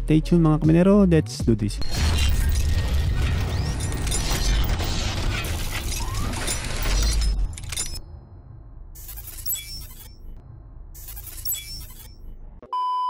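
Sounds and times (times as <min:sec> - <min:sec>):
shattering: 0:01.8 - 0:08.0
metallic clicking and ratcheting: 0:03.2 - 0:08.0, 0:09.0 - 0:10.1, 0:11.0 - 0:12.1.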